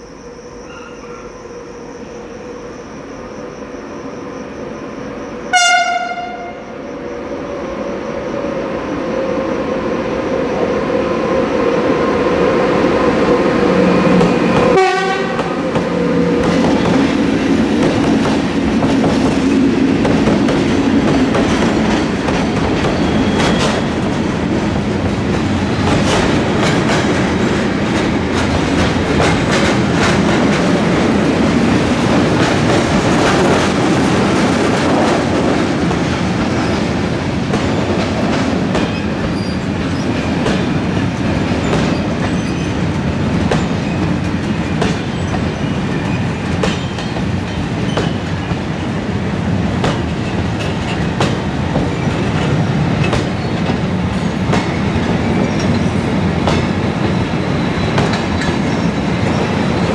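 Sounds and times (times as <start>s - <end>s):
train rumble: 0.0s - 59.9s
locomotive horn blast: 5.5s - 6.7s, 14.7s - 15.5s.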